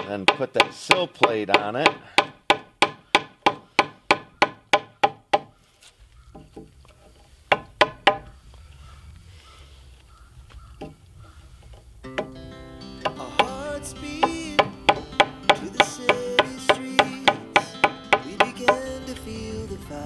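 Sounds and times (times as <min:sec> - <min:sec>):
hammer striking chisel into wood: 0:00.0 - 0:05.5, 0:07.5 - 0:08.3, 0:12.1 - 0:12.4, 0:13.0 - 0:18.9
background music: 0:12.1 - 0:20.0.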